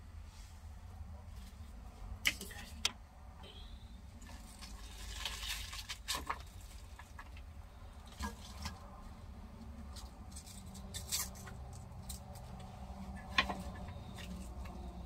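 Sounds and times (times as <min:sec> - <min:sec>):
low steady hum: 0:00.0 - 0:15.0
cabbage clicking and rustling: 0:04.3 - 0:07.4.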